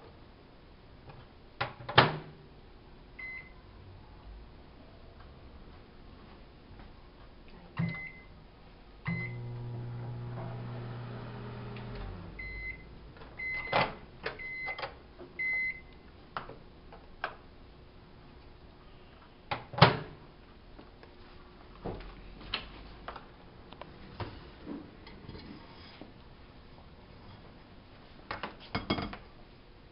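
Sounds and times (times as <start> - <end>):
microwave keypad beeps: 3.2 - 3.6, 7.8 - 8.3, 9.1 - 9.4, 12.4 - 15.9
microwave humming: 9.0 - 14.8.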